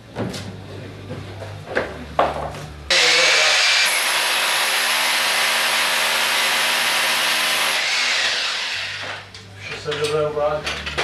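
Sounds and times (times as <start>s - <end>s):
high drill whine: 2.9s - 9.3s
power drill drilling: 2.9s - 9.3s.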